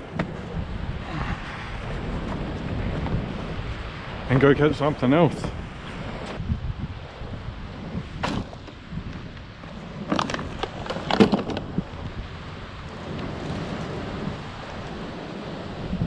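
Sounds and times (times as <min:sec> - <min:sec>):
low wind rumble: 0:00.0 - 0:16.0
knocks and plastic crackles: 0:10.0 - 0:11.8.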